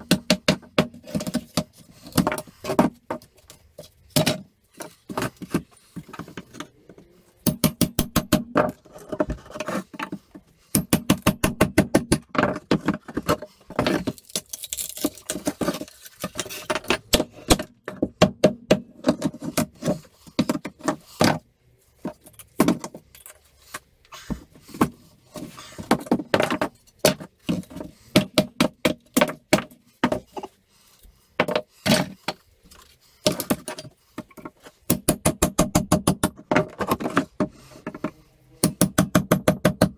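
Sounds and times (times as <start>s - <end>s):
hammer striking wood: 7.4s - 8.7s, 10.8s - 12.3s, 34.9s - 36.6s, 38.6s - 39.9s.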